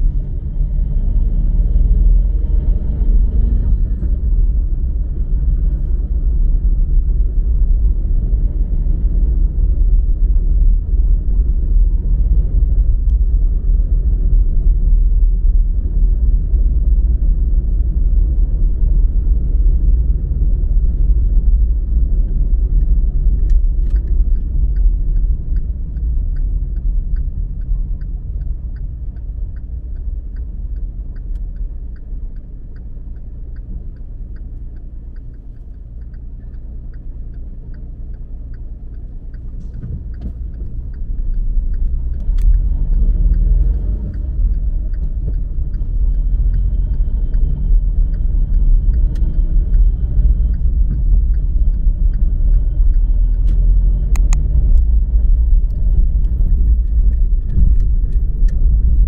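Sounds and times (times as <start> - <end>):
low vehicle rumble: 0.0 - 59.0
light regular ticking: 17.8 - 59.0
click: 22.8 - 54.9.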